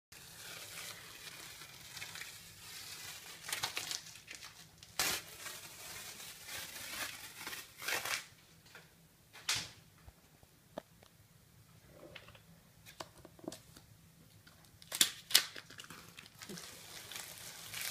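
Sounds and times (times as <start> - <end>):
rustling and crinkling: 12.0 - 17.9.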